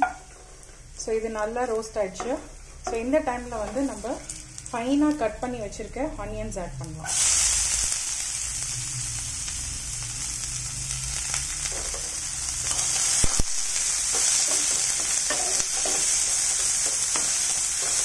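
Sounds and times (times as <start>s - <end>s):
onions sizzling in oil: 0.0s - 18.0s.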